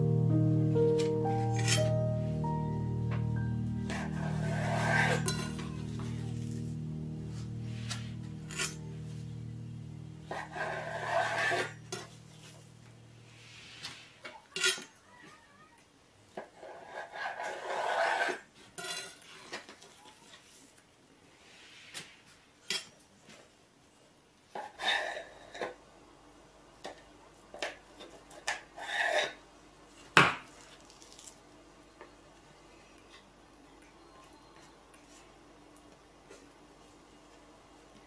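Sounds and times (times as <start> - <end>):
dishes and utensils clinking: 1.4 - 2.0, 3.9 - 6.2, 13.8 - 15.0
scraping of kitchenware: 3.9 - 5.8, 10.3 - 12.4.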